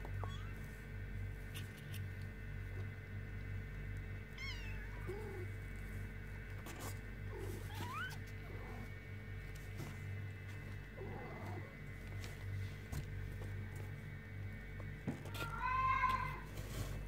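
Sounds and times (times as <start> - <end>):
steady background hum: 0.0 - 17.0
kittens mewing: 0.1 - 0.7, 4.3 - 5.6, 7.3 - 8.9.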